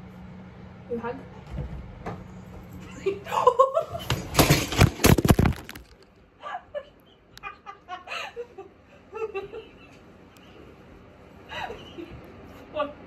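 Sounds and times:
knocks thumps and rustling: 4.1s - 6.0s.

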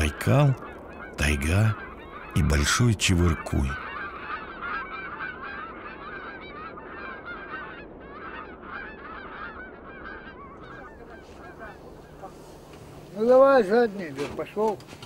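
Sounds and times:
flock of birds calling: 0.0s - 15.0s.

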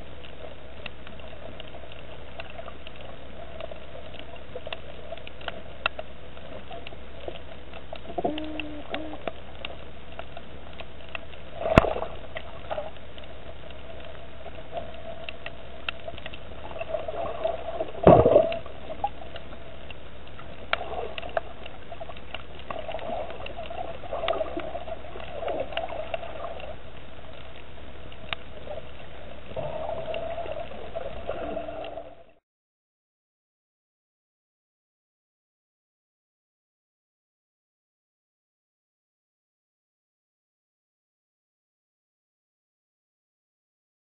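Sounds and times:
faint underwater clicks: 0.0s - 32.4s
underwater murmur and hum: 0.0s - 32.4s.

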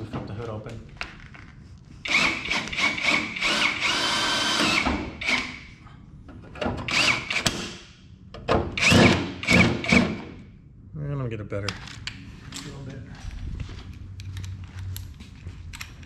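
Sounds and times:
power drill whining: 2.1s - 5.6s, 8.8s - 10.2s.

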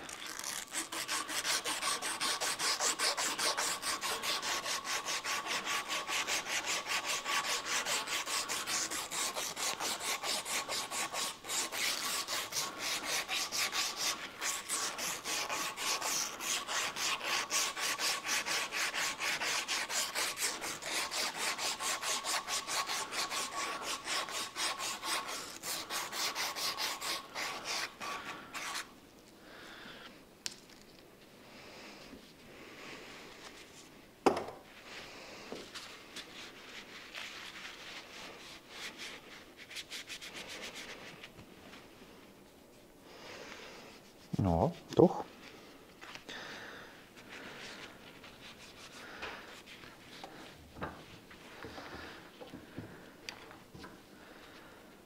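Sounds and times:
sanding belt rasping on metal: 0.4s - 28.8s.

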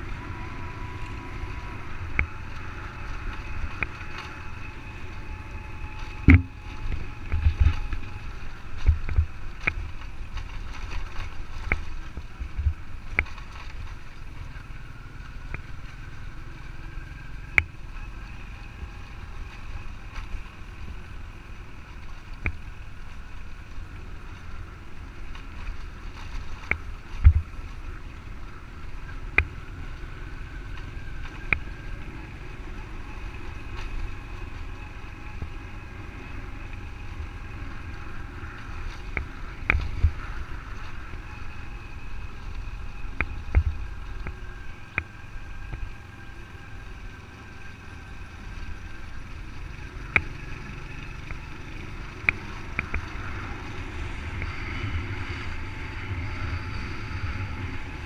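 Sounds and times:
motorbike engine: 0.0s - 58.0s
wind rumble: 0.0s - 58.0s
sharp knocks over bumps: 6.0s - 8.1s.

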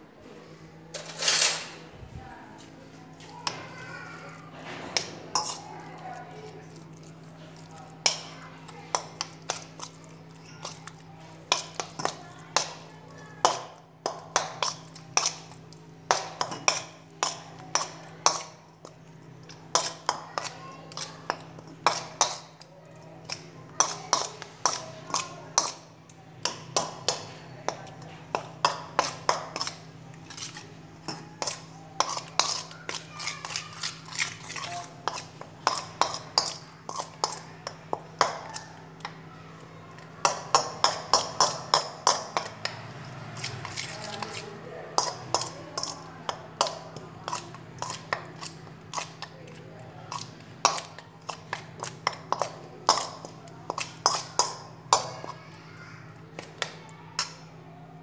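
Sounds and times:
metal spoon scraping steel bowl: 1.0s - 1.8s, 5.0s - 5.7s, 28.4s - 38.6s, 43.4s - 49.3s, 50.1s - 55.4s.

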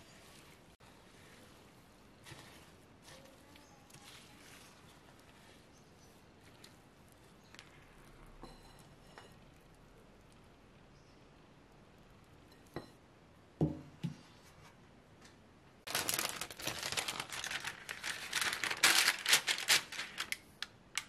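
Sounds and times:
baking paper crinkling: 0.0s - 7.9s, 15.8s - 21.0s.

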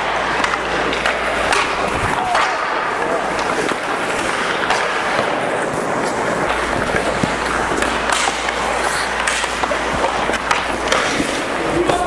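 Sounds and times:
skate blades scraping ice: 0.0s - 12.0s
sticks hitting pucks: 0.0s - 12.0s.

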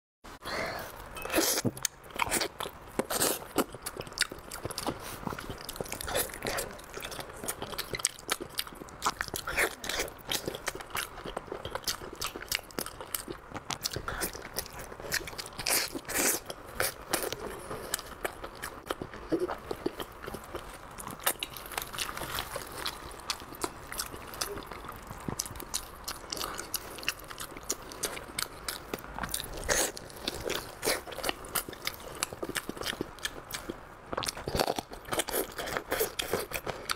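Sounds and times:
person biting and chewing: 7.9s - 36.9s.

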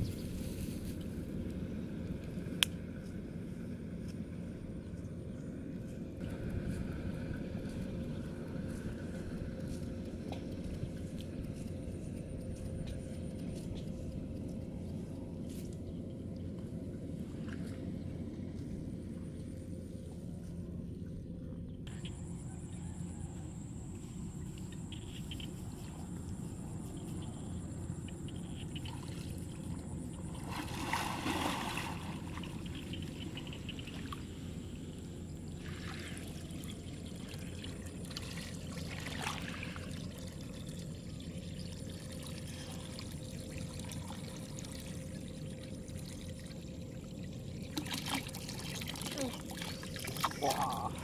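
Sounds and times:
steady low rumble: 0.0s - 51.0s
water splashing: 28.6s - 34.3s, 35.6s - 51.0s.

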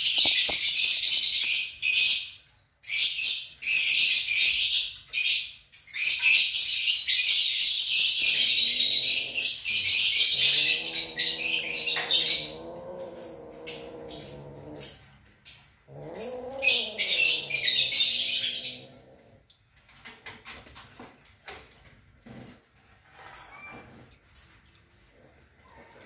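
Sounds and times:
small birds chirping: 0.0s - 19.4s
cat yowling: 8.4s - 14.9s, 15.9s - 19.3s.

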